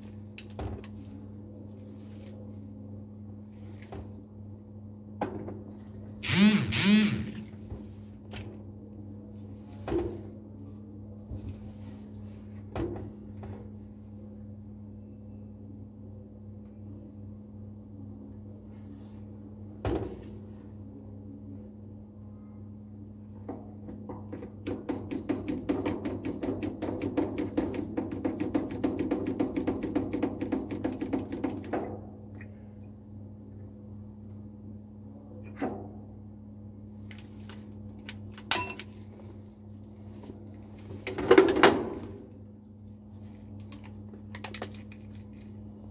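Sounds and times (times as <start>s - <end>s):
cabinet fan hum: 6.0s - 9.6s.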